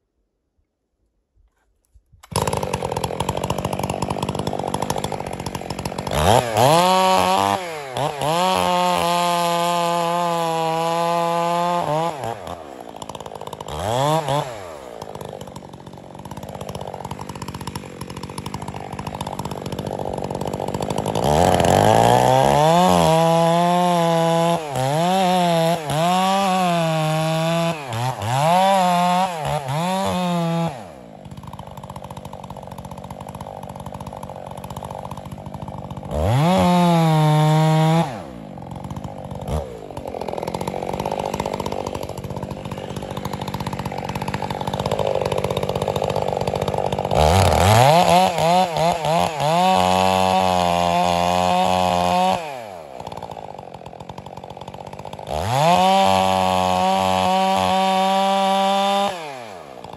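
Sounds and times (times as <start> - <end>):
chainsaw cutting into tree: 2.2 - 59.9
chainsaw idling and revving: 2.2 - 59.9.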